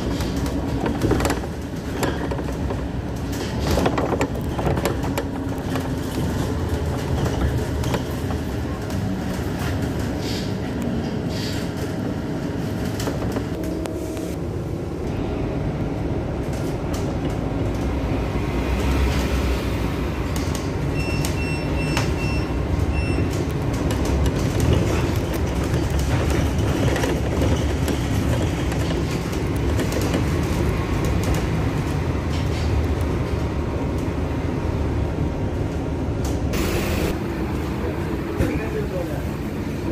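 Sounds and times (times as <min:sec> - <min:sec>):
bus body rattling: 0:00.0 - 0:13.8, 0:20.2 - 0:34.2
bus engine and road rumble: 0:00.0 - 0:39.9.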